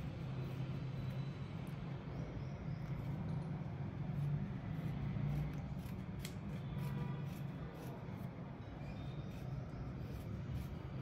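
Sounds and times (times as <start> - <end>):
scissors snipping: 5.4 - 6.6.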